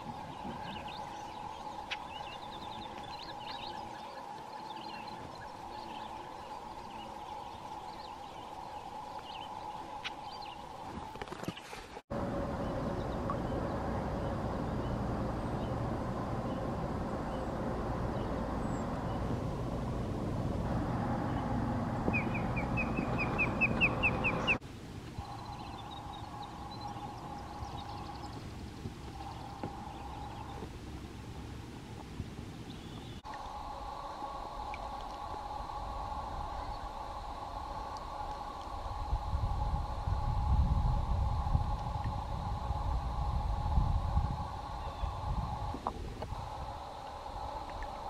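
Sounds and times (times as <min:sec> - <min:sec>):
distant bird chirps: 0:00.0 - 0:11.8, 0:12.5 - 0:19.9, 0:20.6 - 0:24.6, 0:25.2 - 0:31.3, 0:44.5 - 0:48.0
osprey calling: 0:00.0 - 0:11.8, 0:21.2 - 0:24.6, 0:25.2 - 0:30.7, 0:41.4 - 0:48.0
songbirds singing: 0:00.0 - 0:11.8, 0:12.4 - 0:24.6, 0:25.2 - 0:31.5, 0:32.2 - 0:33.5, 0:44.4 - 0:48.0
low rumble: 0:12.1 - 0:24.6, 0:25.2 - 0:48.0
steady even hum: 0:12.1 - 0:48.0.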